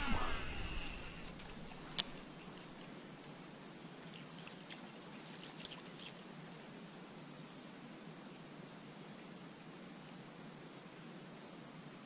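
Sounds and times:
high-pitched drone: 0.0 - 1.3
faint chirps: 0.0 - 2.7.

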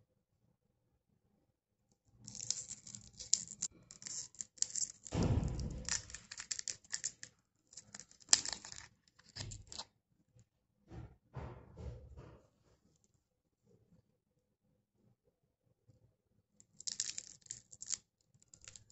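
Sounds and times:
wrapper crinkling and tearing: 2.3 - 9.8, 16.8 - 18.9.

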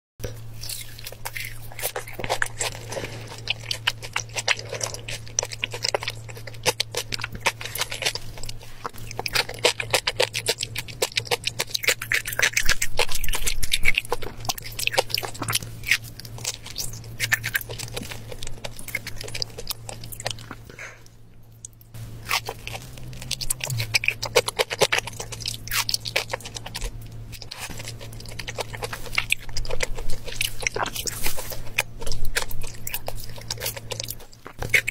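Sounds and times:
steady low hum: 0.2 - 34.9
wet chewing mouth clicks: 0.2 - 34.9.

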